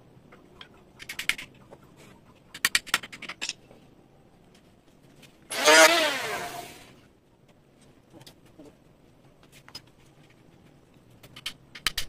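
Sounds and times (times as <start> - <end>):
vehicle engine revving: 5.5 - 6.9.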